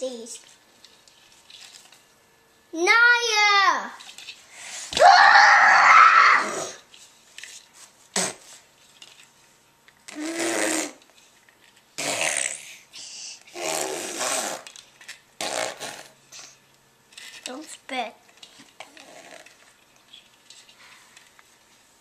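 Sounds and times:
child blowing raspberries: 8.1 - 8.6, 10.1 - 11.0, 12.0 - 14.7, 15.4 - 16.6.

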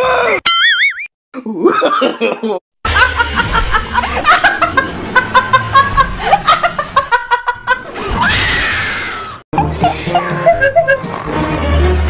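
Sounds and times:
loud laughing: 1.4 - 8.5, 9.6 - 11.4.

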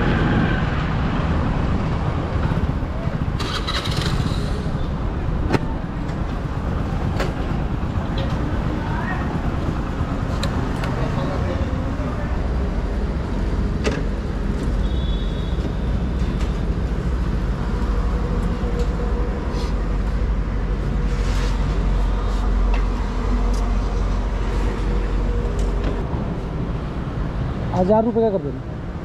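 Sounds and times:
motor vehicles rumbling: 0.0 - 29.0.

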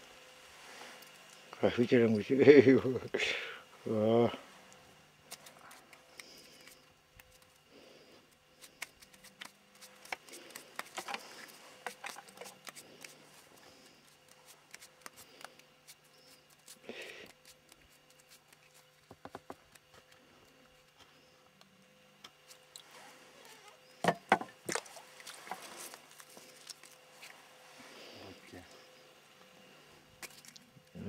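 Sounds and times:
handling clicks scrapes and rustles: 8.3 - 16.4.

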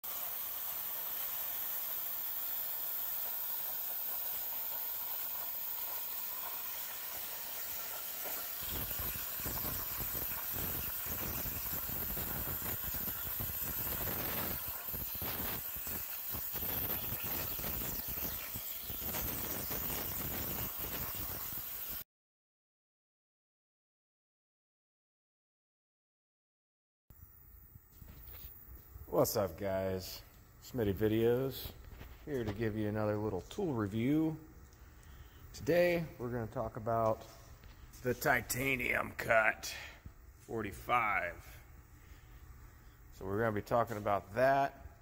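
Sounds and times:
plasma cutter arc hissing: 0.0 - 22.0.

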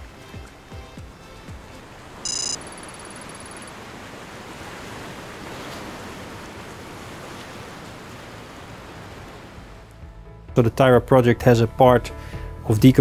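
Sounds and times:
rushing wind and sea: 0.0 - 10.0
faint digital ticking: 2.2 - 3.8
electronic chirp: 2.3 - 3.7.

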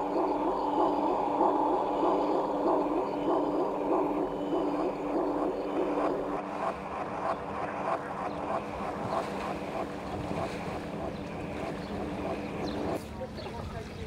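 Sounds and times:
pulsing mechanical hum: 0.0 - 14.0.

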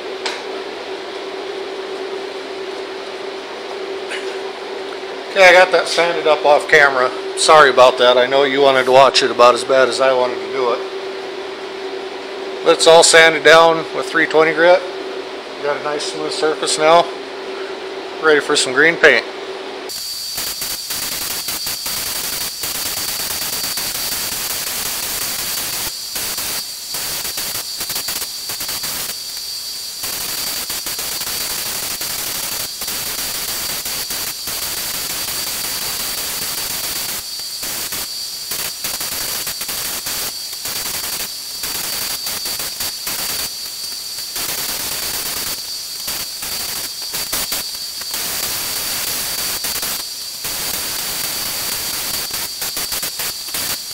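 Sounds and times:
paint spray gun hissing: 19.9 - 53.9.

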